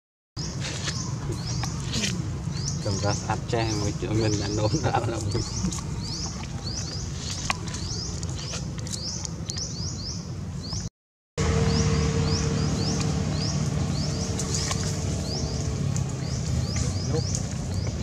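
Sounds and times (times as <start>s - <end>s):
low steady rumble: 1.0s - 18.0s
high bird chirps: 11.5s - 18.0s.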